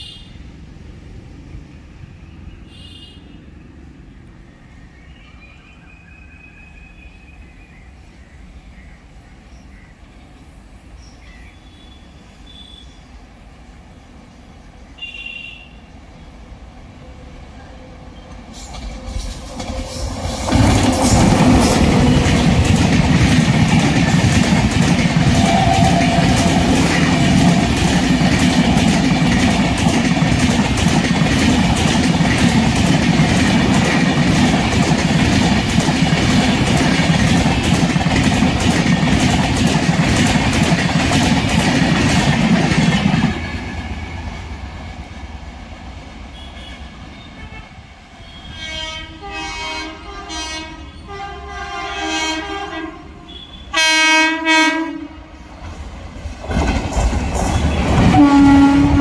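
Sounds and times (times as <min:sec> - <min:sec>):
train coaches rumbling past: 0:00.0 - 0:59.0
locomotive horn blasts: 0:15.0 - 0:15.8, 0:46.4 - 0:55.3, 0:57.7 - 0:59.0.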